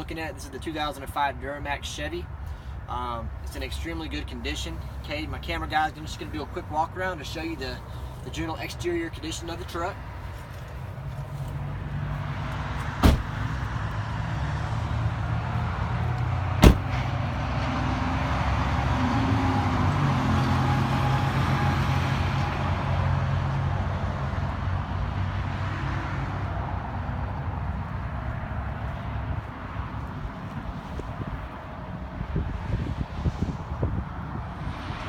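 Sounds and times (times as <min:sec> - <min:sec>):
road traffic passing: 0:00.0 - 0:35.0
low vehicle hum: 0:01.3 - 0:35.0
sharp knocks: 0:13.0 - 0:13.4, 0:16.6 - 0:17.0.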